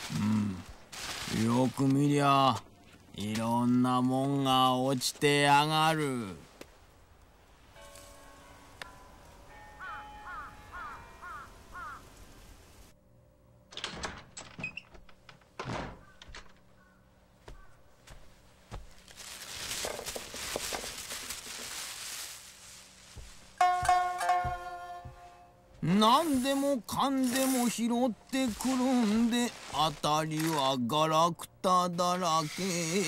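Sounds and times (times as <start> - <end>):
hollow thunks: 14.9 - 16.7
rustling clatter: 18.8 - 24.4.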